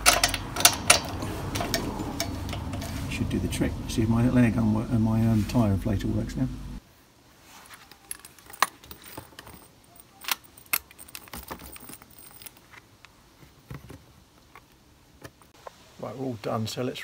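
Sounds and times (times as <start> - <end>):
air hose couplers clicking: 0.0 - 3.1.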